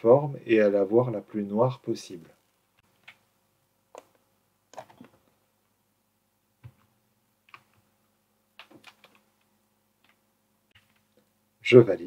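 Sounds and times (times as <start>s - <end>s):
computer mouse and keyboard clicks: 6.6s - 7.8s, 8.6s - 11.3s.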